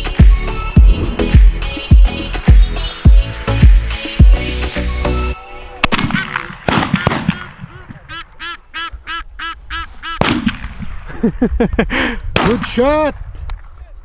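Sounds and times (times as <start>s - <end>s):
background music: 0.0s - 6.2s
geese honking: 5.4s - 10.3s
shotgun shot: 5.8s - 7.6s, 10.2s - 11.0s, 12.4s - 12.7s.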